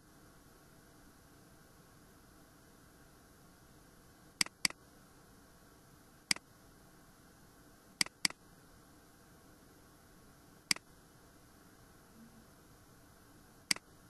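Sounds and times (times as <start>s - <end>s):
faint steady hiss: 0.0s - 14.0s
mouse button clicks: 4.4s - 4.8s.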